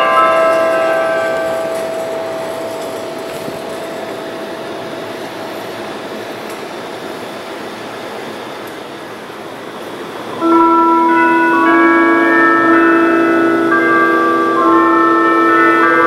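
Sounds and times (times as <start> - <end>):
church bells ringing: 0.0 - 7.1, 10.2 - 16.0
steady rumbling noise: 0.0 - 15.9.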